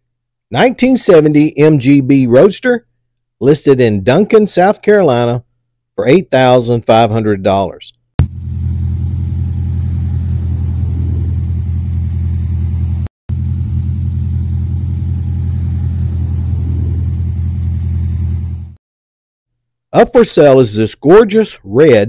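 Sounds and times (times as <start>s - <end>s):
car engine idling: 8.2s - 18.8s.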